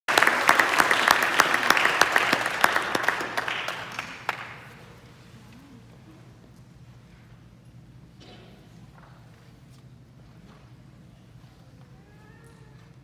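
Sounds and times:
audience applauding: 0.1 - 4.9.

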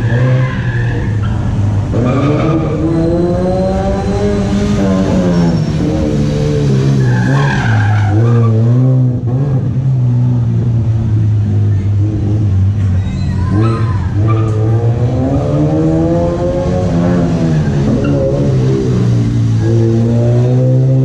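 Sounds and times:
race car engine revving: 0.0 - 21.0
tyre squeal: 4.8 - 8.6, 13.0 - 14.8.

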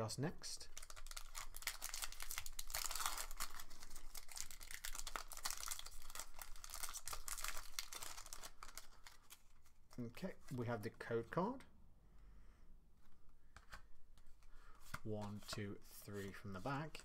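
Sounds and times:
foil wrapper crinkling and tearing: 0.8 - 9.8.

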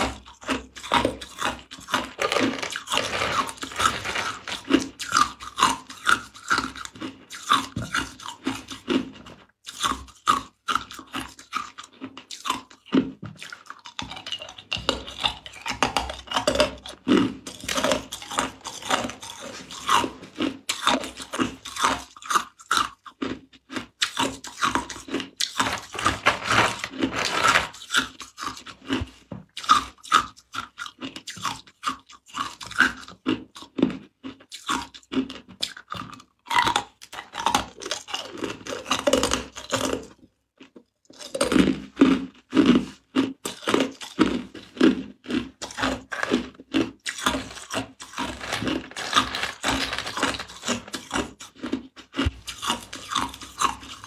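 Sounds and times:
ice cubes crunching: 0.0 - 9.1, 13.4 - 29.8, 43.5 - 54.0.

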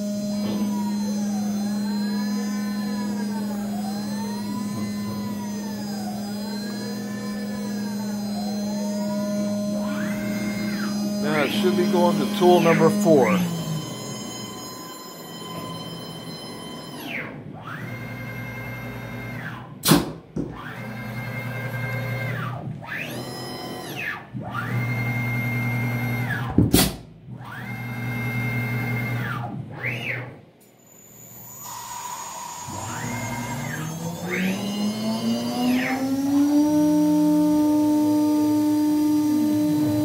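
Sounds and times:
spindle spinning up whine: 0.0 - 16.4, 31.6 - 40.0
motors whining: 0.0 - 19.7, 30.8 - 40.0.

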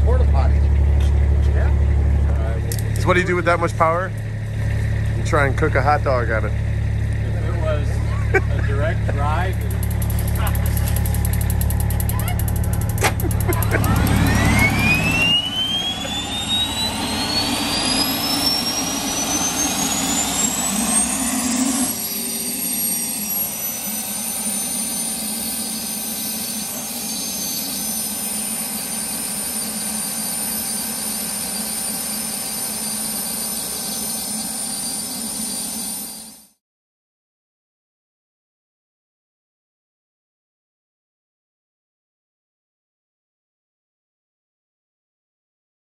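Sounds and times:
low engine rumble: 0.0 - 36.0
turbine engine jet whine: 0.0 - 36.6.

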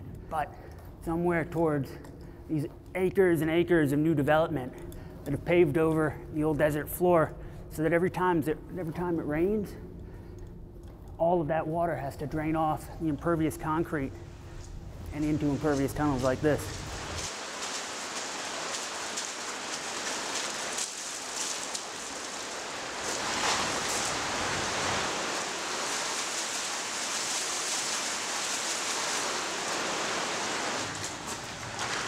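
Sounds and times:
water rushing through tunnel: 15.1 - 32.0.

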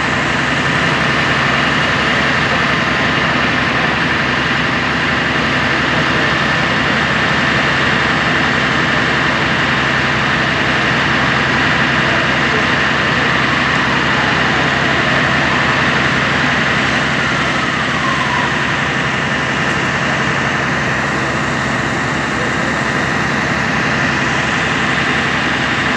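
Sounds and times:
diesel engine idling: 0.0 - 25.9
high-pitched engine whine: 0.0 - 25.9.

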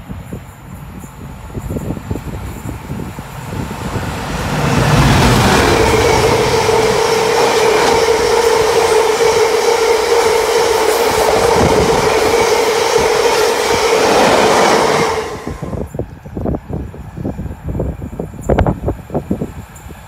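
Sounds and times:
freight train rolling past: 0.0 - 20.0
wheels ringing on rails: 0.4 - 20.0.

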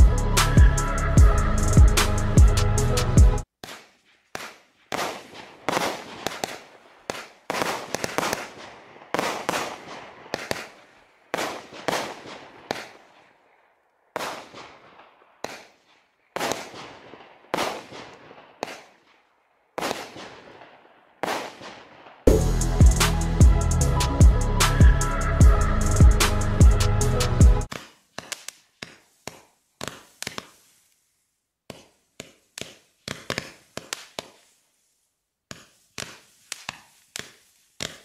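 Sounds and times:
fireworks shots with hiss: 3.6 - 13.2, 14.2 - 19.2, 19.8 - 23.4, 27.7 - 31.0, 31.7 - 38.0.

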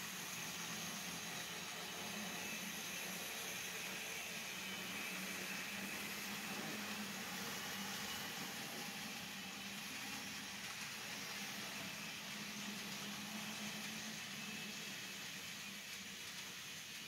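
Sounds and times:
model train wheels rolling on rail: 0.0 - 17.0.

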